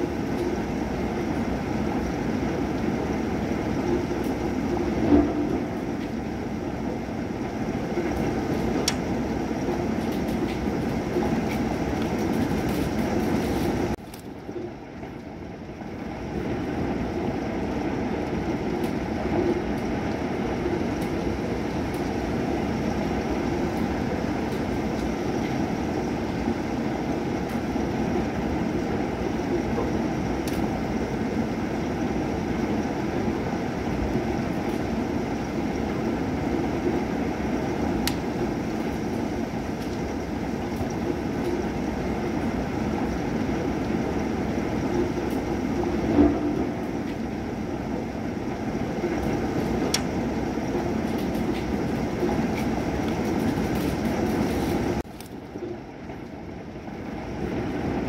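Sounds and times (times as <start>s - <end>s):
heavy rain falling: 0.0s - 58.0s
raindrop ticks: 10.0s - 13.3s, 17.6s - 22.2s, 29.6s - 30.7s, 38.0s - 38.9s, 39.7s - 41.8s, 48.4s - 56.4s.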